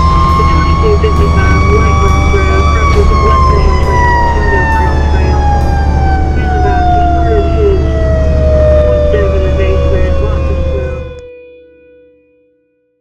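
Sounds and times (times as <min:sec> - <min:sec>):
truck rumbling: 0:00.0 - 0:11.2
fire engine siren wailing: 0:00.0 - 0:11.3.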